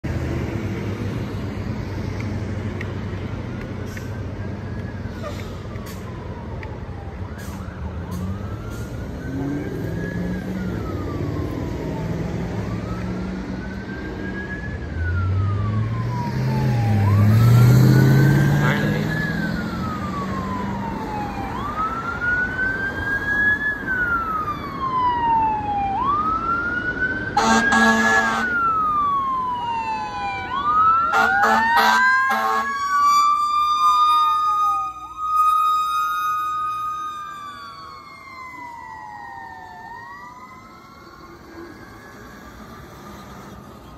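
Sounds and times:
fire engine wail siren: 0.0 - 43.9
pickup truck engine passing: 15.1 - 27.0
air horn blasts: 27.4 - 28.6, 31.1 - 32.7.

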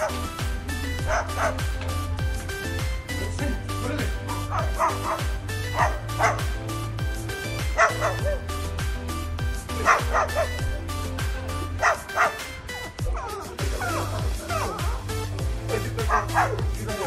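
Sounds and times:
dance music with bass-drum beat: 0.0 - 17.0
dog-bark-like yaps: 1.0 - 1.6, 4.5 - 6.4, 7.8 - 8.5, 9.8 - 10.7, 11.8 - 12.5, 16.1 - 16.6.

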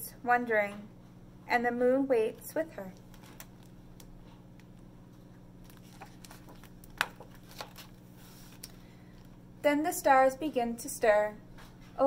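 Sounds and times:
paper page rustling: 2.9 - 4.8, 5.6 - 9.3.

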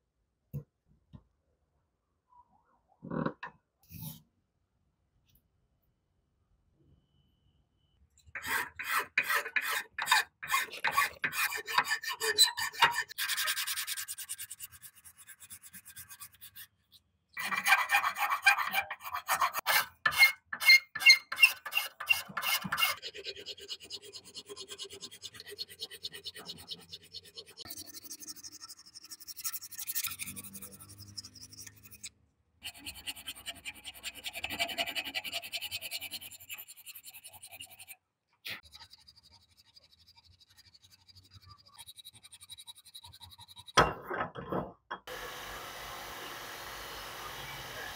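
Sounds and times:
hand file rasping: 8.4 - 16.8, 17.4 - 43.8.

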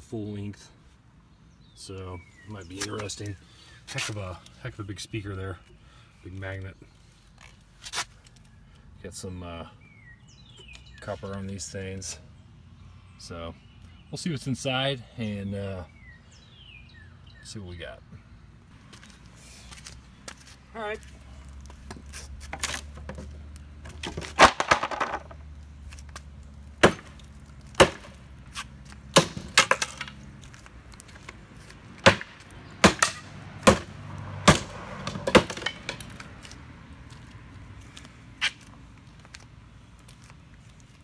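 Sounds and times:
wood cracking and splintering: 26.7 - 28.2.

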